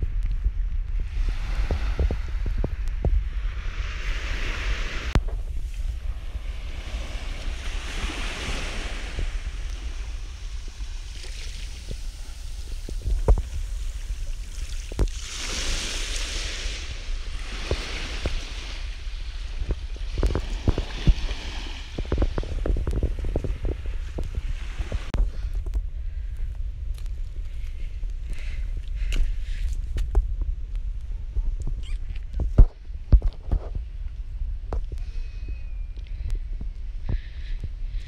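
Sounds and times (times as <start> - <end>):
wind rumbling on microphone: 0.0 - 38.0
small waves washing onto shore: 1.0 - 25.6.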